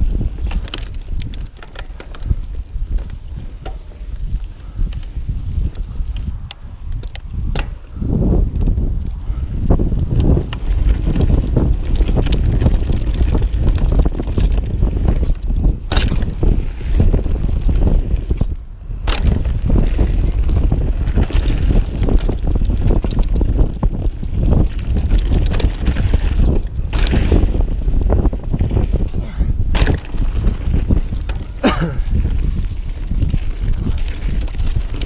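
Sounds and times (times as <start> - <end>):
bike rattling: 0.0 - 35.0
wind buffeting microphone: 0.0 - 35.0
tyre rumble on dirt: 9.7 - 29.0, 29.7 - 35.0.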